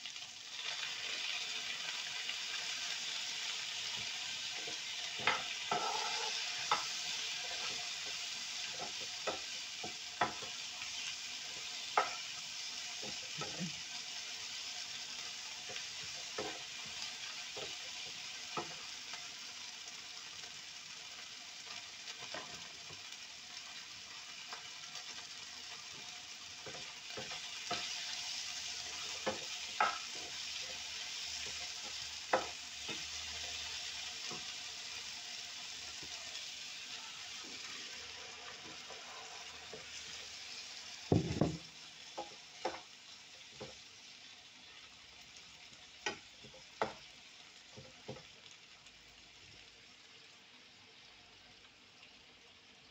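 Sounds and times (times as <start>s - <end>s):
food sizzling in frying pan: 0.0s - 52.9s
spatula tapping and scraping pan: 3.9s - 10.6s, 11.9s - 12.3s, 13.0s - 13.8s, 15.6s - 18.8s, 25.9s - 28.1s, 28.9s - 33.5s, 41.1s - 42.9s, 46.0s - 47.1s.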